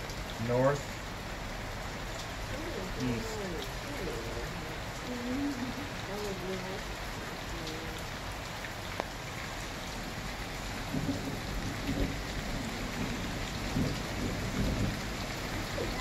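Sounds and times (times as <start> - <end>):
steady rain: 0.0 - 16.0
thunder rumbling: 10.0 - 16.0.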